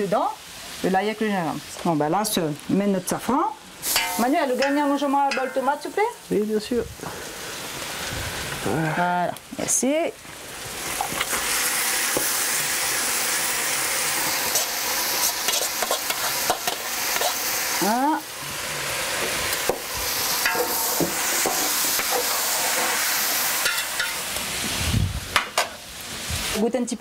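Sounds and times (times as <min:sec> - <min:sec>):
food sizzling in a pot: 0:00.0 - 0:27.0.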